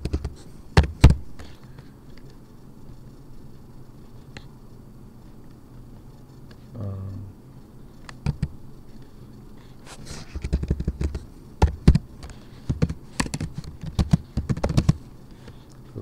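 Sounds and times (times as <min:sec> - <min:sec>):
computer keyboard typing: 0:08.1 - 0:08.5, 0:10.4 - 0:12.0, 0:12.7 - 0:15.0.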